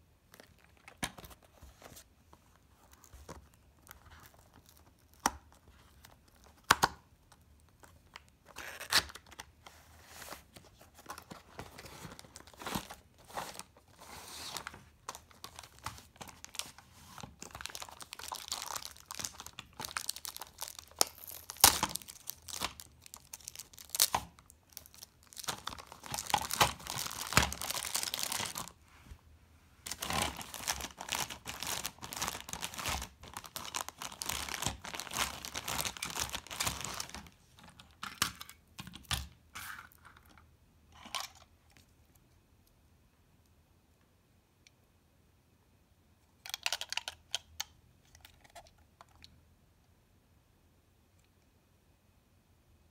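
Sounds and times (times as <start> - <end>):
plastic packaging crinkling and tearing: 7.7 - 9.5, 10.7 - 28.8, 29.9 - 38.3.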